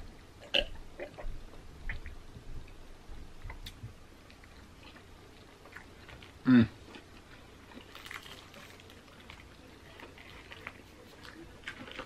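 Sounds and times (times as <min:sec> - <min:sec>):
person burping: 0:06.4 - 0:06.8.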